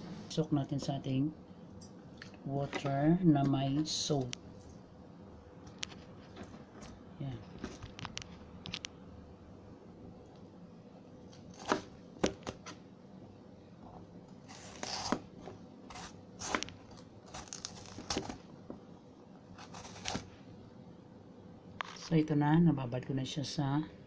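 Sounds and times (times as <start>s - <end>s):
knife slicing on cutting board: 14.5s - 15.3s, 15.9s - 16.7s, 19.6s - 20.3s.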